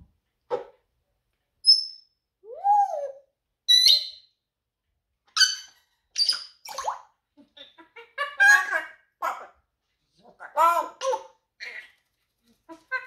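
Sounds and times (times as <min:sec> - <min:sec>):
parrot whistling and calling: 0:01.6 - 0:04.3, 0:05.4 - 0:07.0
parrot squawks: 0:05.4 - 0:09.6.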